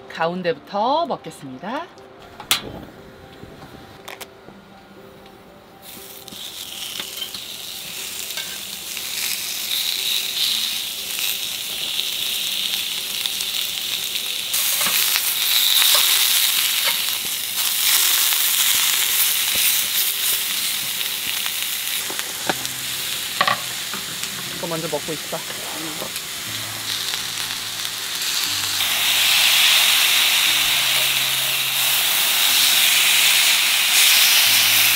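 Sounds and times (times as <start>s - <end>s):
steaks sizzling on grill pan: 5.8s - 34.9s.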